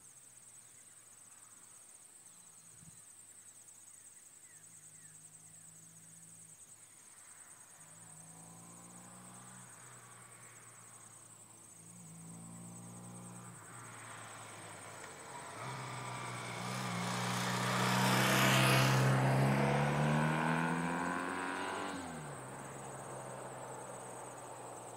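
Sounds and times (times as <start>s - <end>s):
crickets chirping: 0.0s - 24.9s
motorcycle accelerating past: 8.1s - 24.9s.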